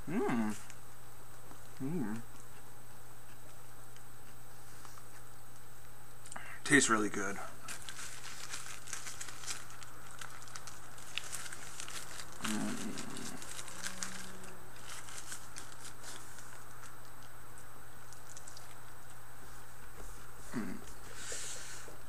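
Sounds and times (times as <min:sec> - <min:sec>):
low hum from mouth: 0:00.0 - 0:05.4, 0:12.1 - 0:22.0
paper wrapper crinkling: 0:07.6 - 0:19.2
chewing: 0:08.5 - 0:21.0.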